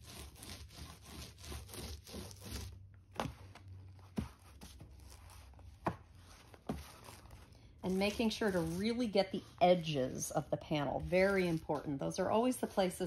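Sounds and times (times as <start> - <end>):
paint roller scraping strokes: 6.2 - 13.0.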